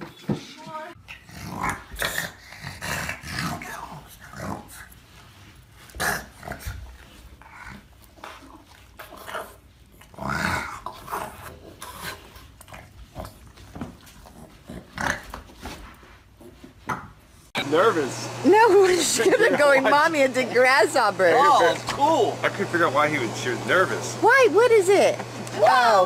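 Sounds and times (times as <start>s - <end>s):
dog growling: 1.0s - 4.8s, 5.9s - 13.4s.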